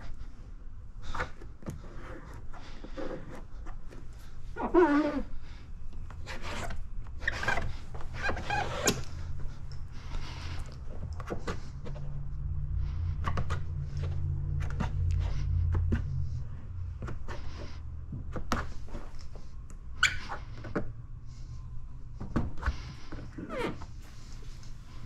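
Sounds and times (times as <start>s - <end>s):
squeegee squeaking and scraping: 1.0s - 12.2s, 20.0s - 20.9s, 22.6s - 25.0s
low rumble: 9.0s - 18.4s.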